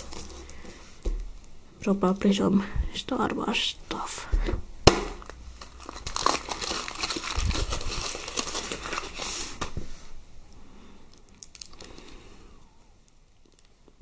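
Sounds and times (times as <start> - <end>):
foil wrapper crinkling: 0.0 - 0.8, 5.1 - 9.8, 11.2 - 12.1.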